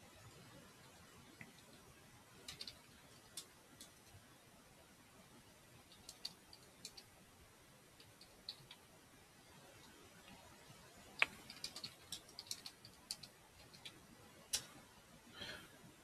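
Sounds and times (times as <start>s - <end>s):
keyboard keystrokes clicking: 2.4s - 2.8s, 5.9s - 7.0s, 11.2s - 14.7s.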